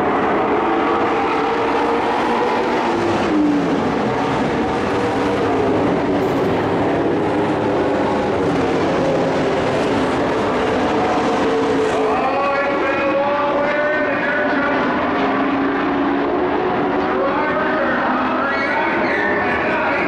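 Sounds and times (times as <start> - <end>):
race truck engines: 0.0 - 20.0.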